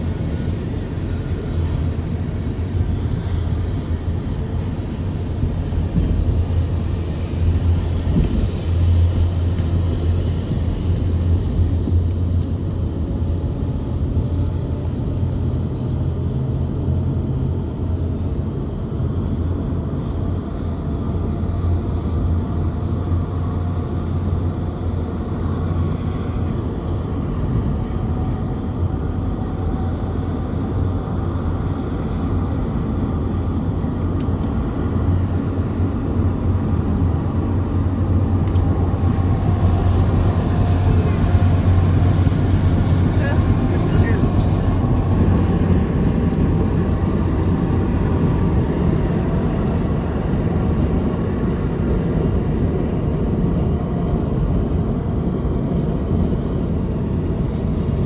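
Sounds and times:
car road rumble: 0.0s - 58.0s.

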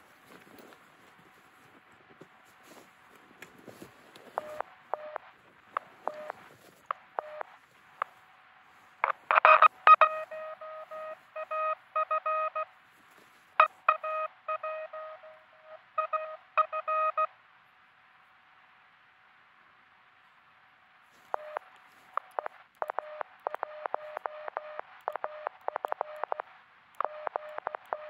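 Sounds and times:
faint steady tone: 3.7s - 28.0s
morse code beeps: 4.4s - 6.4s, 7.2s - 7.5s, 9.0s - 12.7s, 13.6s - 17.3s, 21.3s - 28.0s.

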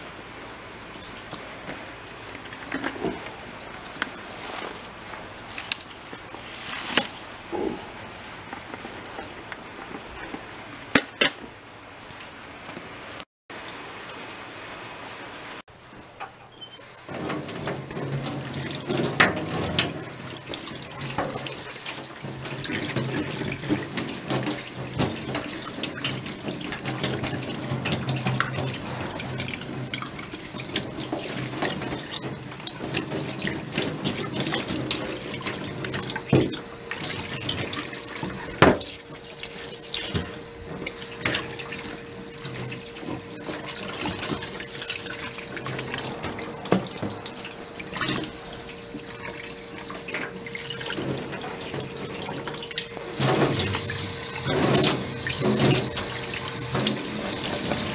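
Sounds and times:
tap water splashing in sink: 17.1s - 57.9s.

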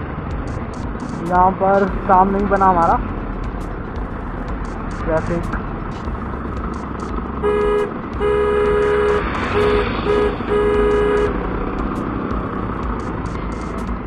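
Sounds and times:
traffic engines rumbling: 0.0s - 14.0s
vehicle horn honking: 7.4s - 11.4s.

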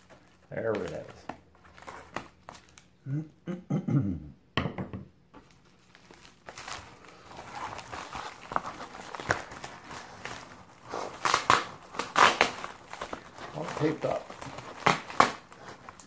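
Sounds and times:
plastic mailer crinkling: 0.0s - 3.0s, 5.4s - 16.0s
man mumbling: 3.0s - 4.4s.

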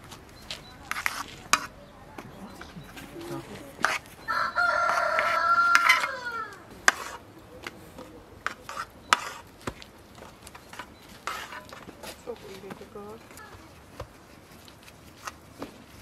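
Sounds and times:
rooster crowing: 4.2s - 6.7s.

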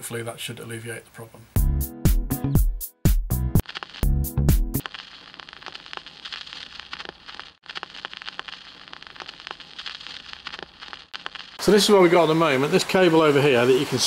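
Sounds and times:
tv static crackling hiss: 3.6s - 14.0s.

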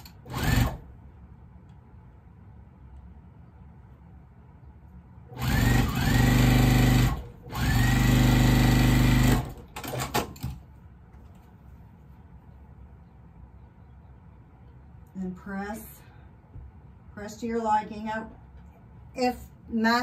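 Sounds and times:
sewing machine stitching: 0.0s - 0.8s, 5.4s - 10.5s.

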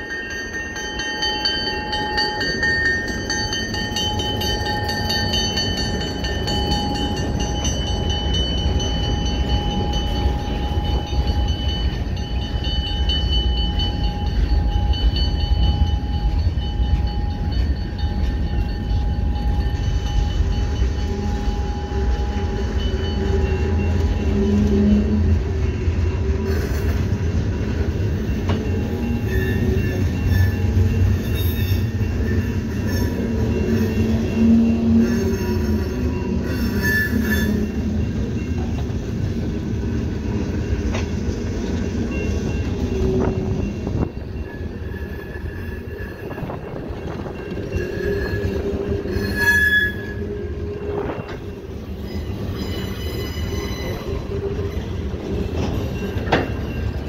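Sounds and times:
freight train wheels rumbling: 0.0s - 57.0s
wheels squealing: 1.9s - 57.0s.

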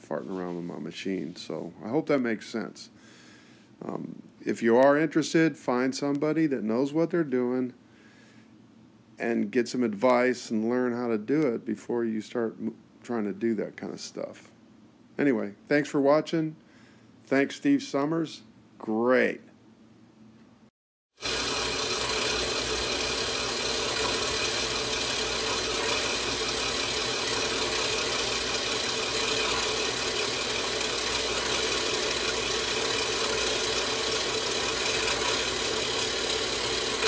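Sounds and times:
bandsaw cutting metal: 21.2s - 37.0s.

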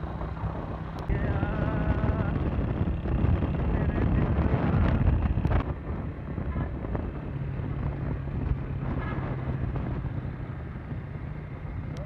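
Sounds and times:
low engine hum: 0.0s - 12.0s
vehicle road noise: 0.0s - 12.0s
wind buffeting microphone: 0.0s - 12.0s.

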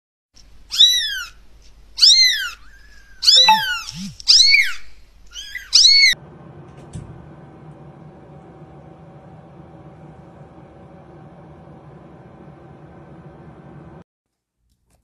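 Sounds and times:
kitten meowing: 0.7s - 1.3s, 2.0s - 2.6s, 3.2s - 6.1s.

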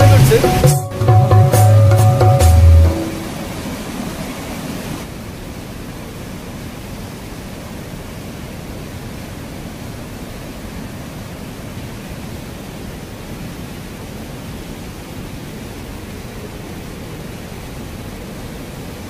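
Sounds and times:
river rushing over rocks: 0.0s - 19.0s.

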